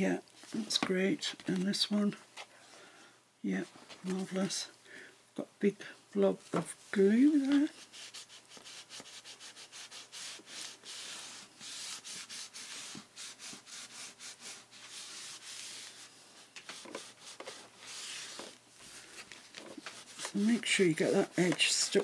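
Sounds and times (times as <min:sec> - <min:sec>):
cloth pad rubbing paper: 0:07.1 - 0:22.0.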